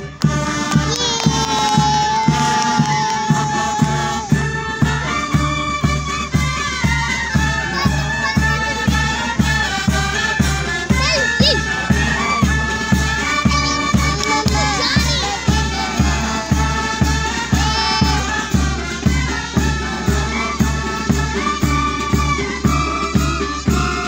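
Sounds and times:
wind instruments melody: 0:00.0 - 0:24.0.

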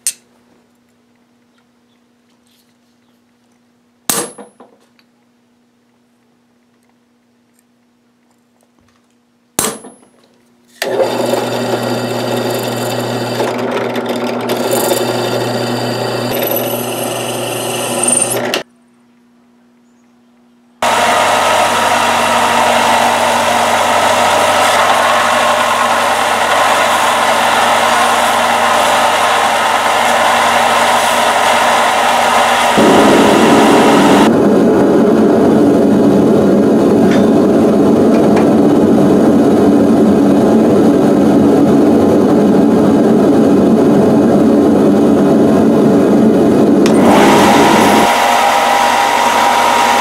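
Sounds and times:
belt grinder running: 0:10.8 - 0:18.6, 0:20.8 - 0:34.3, 0:46.8 - 0:50.0
drill boring through steel: 0:10.8 - 0:18.6, 0:20.8 - 0:34.3, 0:46.8 - 0:50.0.

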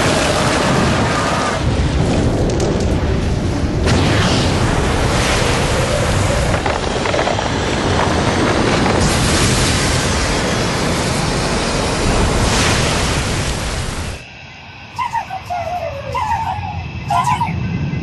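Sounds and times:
energy eruption rushing roar: 0:00.0 - 0:14.3
deep rumble: 0:00.0 - 0:14.9.

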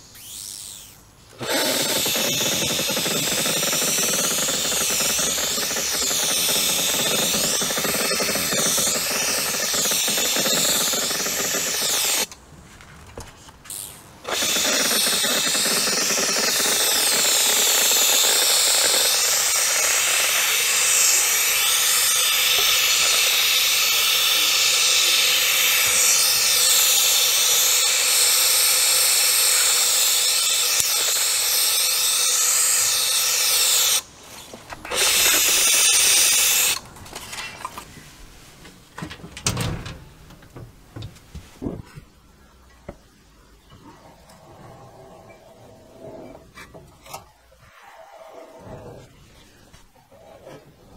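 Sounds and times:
paint spray hissing: 0:14.4 - 0:34.0.

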